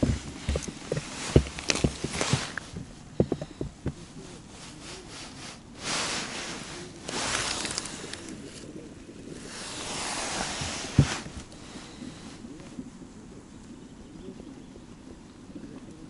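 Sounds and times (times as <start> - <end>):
tackle knocks and thumps: 0.0 - 4.0
scraping and rubbing noise: 0.0 - 12.4.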